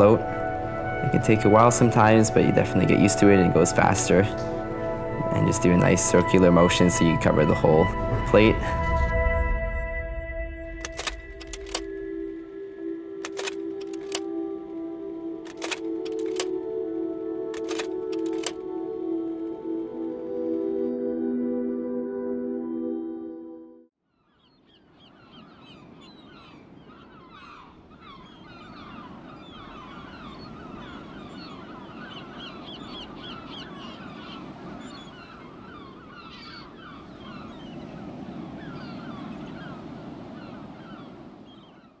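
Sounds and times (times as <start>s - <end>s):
low rushing background: 0.0s - 20.5s
music: 0.0s - 23.9s.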